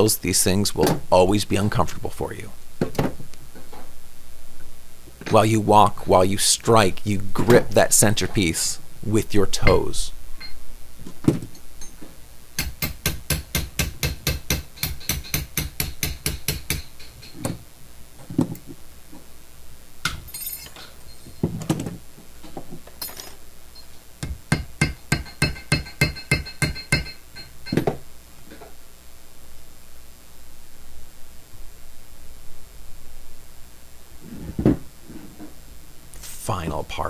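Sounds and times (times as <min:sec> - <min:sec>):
hammer tapping on metal: 0:12.6 - 0:17.4, 0:24.2 - 0:28.0.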